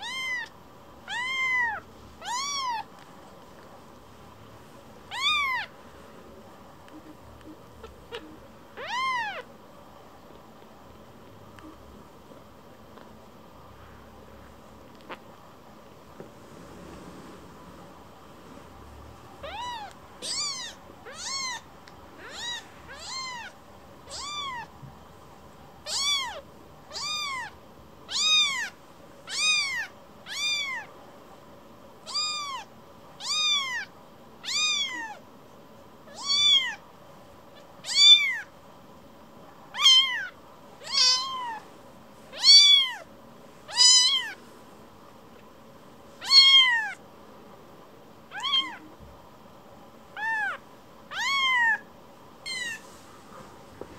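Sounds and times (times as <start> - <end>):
kitten mewing: 0.0 - 0.5, 1.1 - 2.9, 5.1 - 5.7, 7.0 - 9.5, 19.4 - 21.6, 22.2 - 24.7, 25.8 - 30.9, 32.1 - 35.2, 39.8 - 41.6, 43.7 - 44.4, 46.2 - 47.0, 48.3 - 48.9, 50.2 - 51.9, 52.5 - 52.8.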